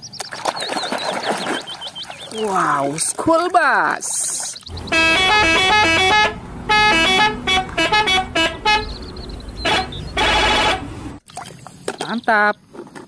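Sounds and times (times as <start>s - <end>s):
bus horn playing a tune: 4.7s - 11.2s.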